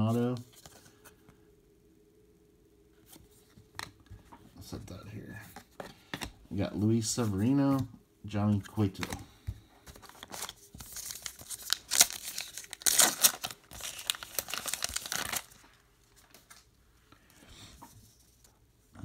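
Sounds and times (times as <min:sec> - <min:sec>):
card pack wrapper tearing: 0:10.0 - 0:15.6.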